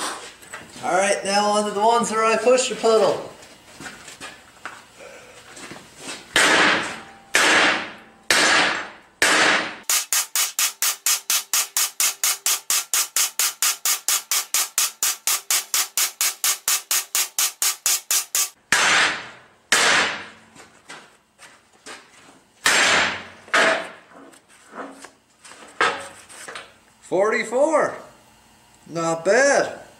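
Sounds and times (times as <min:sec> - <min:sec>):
hammer striking steel: 0:06.4 - 0:20.3.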